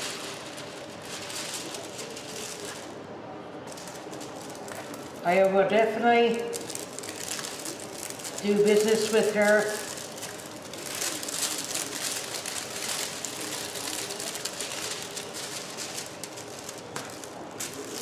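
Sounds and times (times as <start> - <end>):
plastic film crinkling: 0.0 - 18.0.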